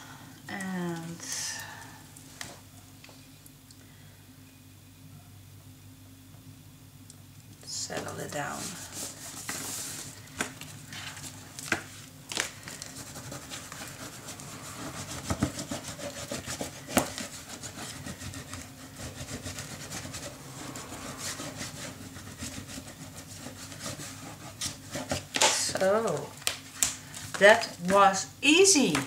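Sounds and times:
hands rubbing paper: 8.4s - 27.6s.

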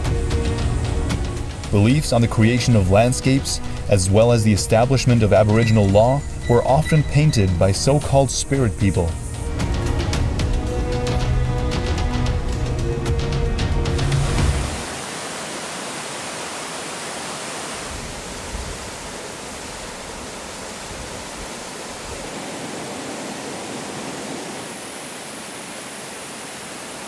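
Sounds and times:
background music: 0.0s - 14.9s
water pouring down cascade: 14.2s - 27.0s.

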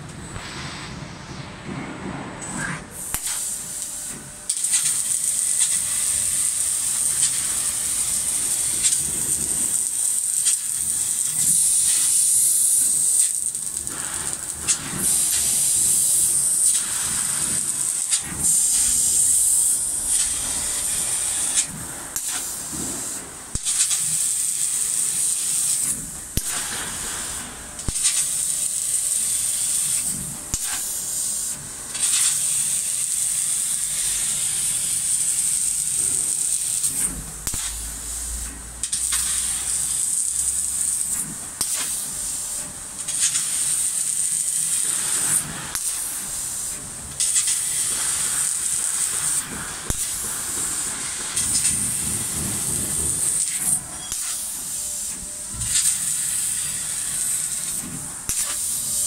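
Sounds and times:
laser cutter hissing: 0.2s - 59.0s.

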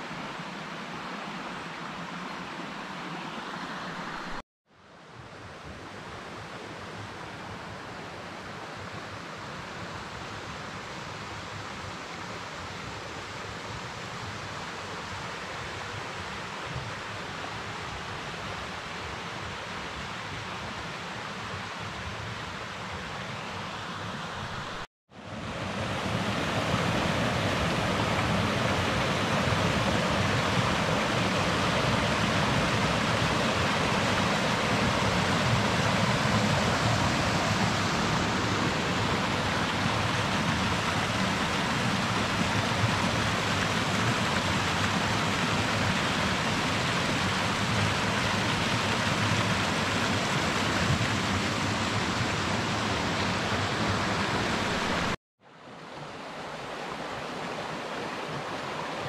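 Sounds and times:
stream rushing over rocks: 0.0s - 4.4s, 23.9s - 59.0s.

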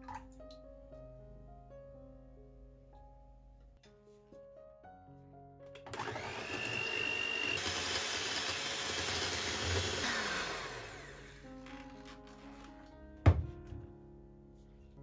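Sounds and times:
electric hand mixer whining: 5.9s - 11.5s.

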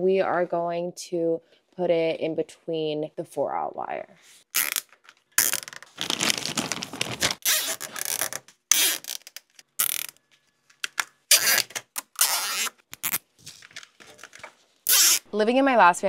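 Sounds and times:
zip ties ratcheting tight: 4.5s - 5.8s, 7.4s - 10.2s, 10.8s - 13.3s, 14.8s - 15.3s.

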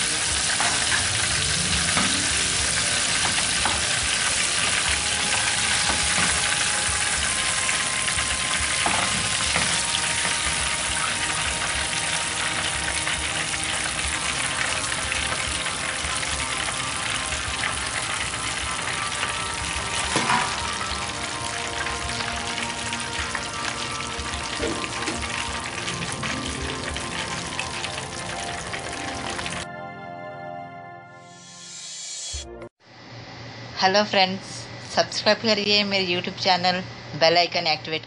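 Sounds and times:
chicken deep-frying in oil: 0.0s - 29.7s.

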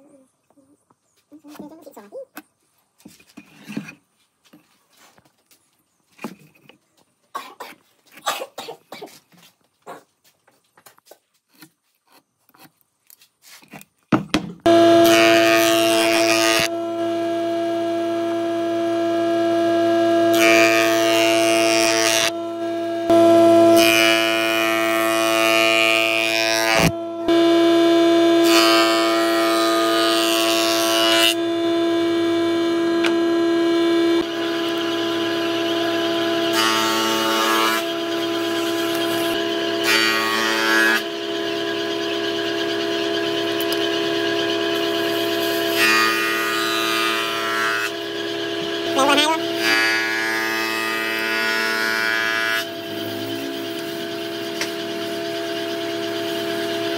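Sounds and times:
jointer-planer whine: 14.2s - 56.9s
wood cutting rush: 14.6s - 56.9s.

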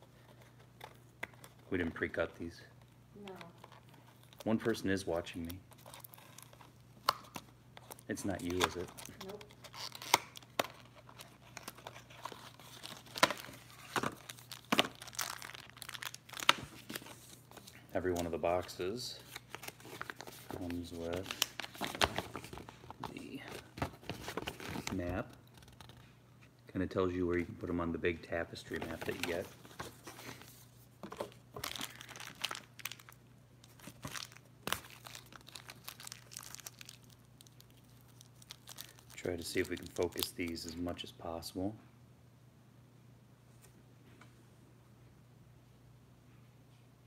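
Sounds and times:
cardboard and wrapper tearing: 5.4s - 17.8s, 19.3s - 23.1s, 31.5s - 40.6s.

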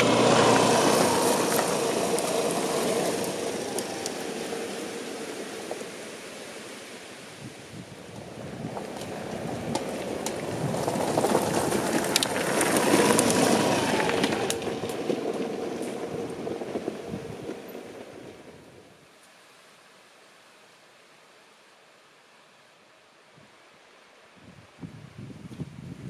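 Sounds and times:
vehicle passing by: 0.0s - 7.3s, 8.2s - 18.5s.

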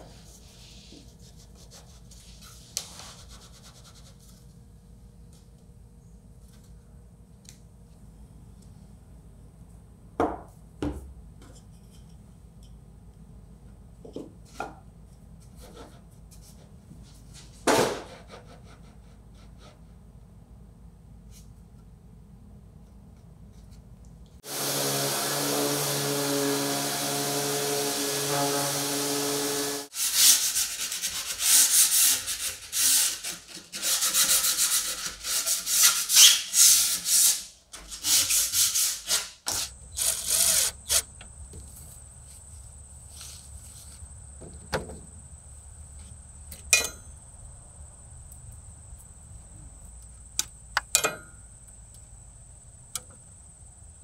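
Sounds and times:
sanding strokes on wood: 24.4s - 37.4s
faint high insect drone: 39.8s - 54.0s
small motorised tool running: 39.9s - 41.1s.

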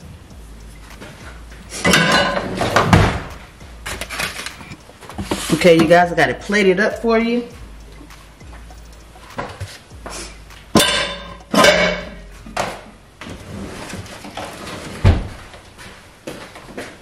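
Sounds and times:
plate and metal spatula clattering: 1.9s - 2.6s.

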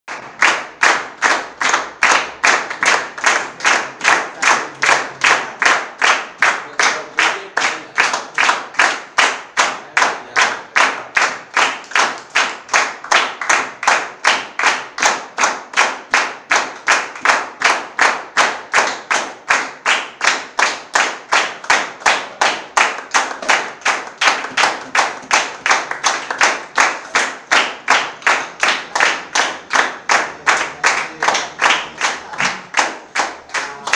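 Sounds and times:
audience clapping in unison: 0.0s - 33.9s.

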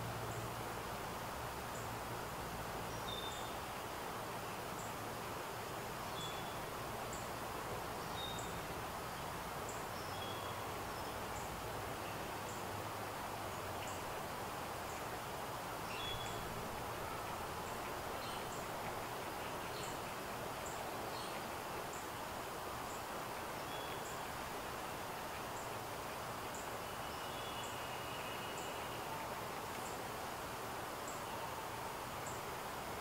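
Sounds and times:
background hiss: 0.0s - 33.0s
small birds chirping: 6.0s - 12.7s, 13.4s - 29.1s.

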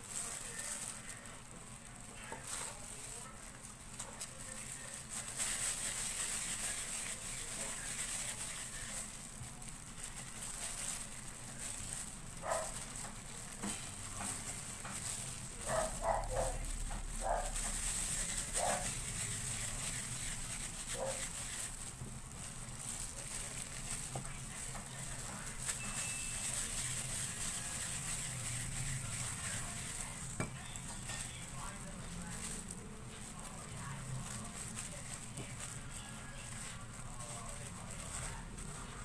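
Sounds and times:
gloved hands rustling crumbly mixture: 0.0s - 39.0s
dog barking: 12.4s - 12.8s, 15.6s - 16.6s.

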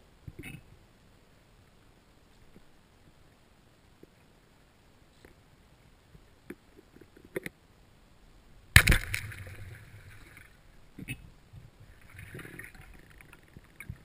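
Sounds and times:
speargun crack underwater: 8.8s - 10.5s
underwater rushing noise: 8.8s - 10.6s, 11.8s - 14.0s
faint clicks: 10.1s - 14.0s.

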